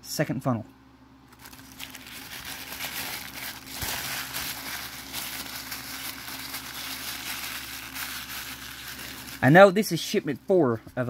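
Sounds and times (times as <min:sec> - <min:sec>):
paper wrapping crinkling: 0:01.3 - 0:09.6.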